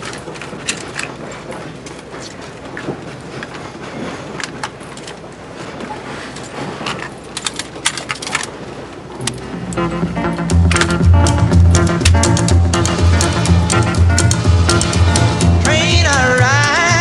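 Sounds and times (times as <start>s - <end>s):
steady rushing noise: 8.5s - 17.0s
music: 9.2s - 17.0s
sharp clicks and knocks: 10.5s - 16.4s.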